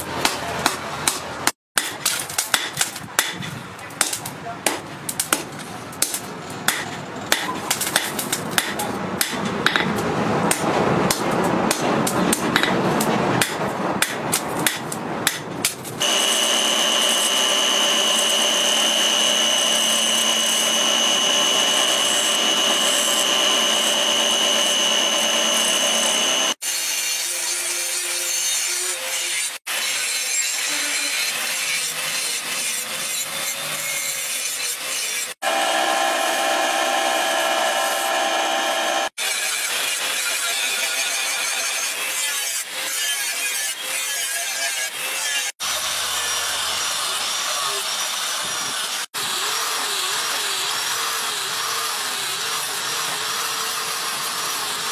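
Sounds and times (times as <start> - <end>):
angle grinder grinding metal: 16.0 - 54.9.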